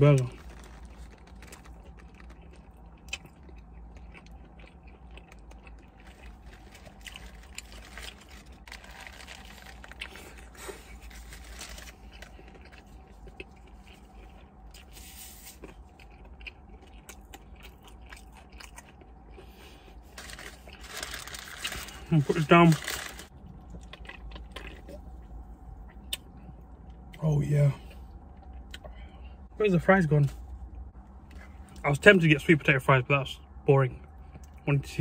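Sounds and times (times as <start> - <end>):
person chewing and crunching: 0.0 - 27.2.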